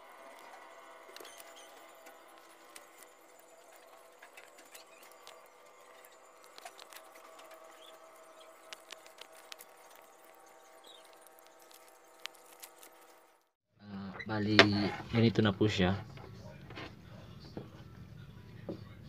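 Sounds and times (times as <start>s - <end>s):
steady background hum: 0.0s - 13.4s
plastic strands crackling: 0.0s - 13.6s.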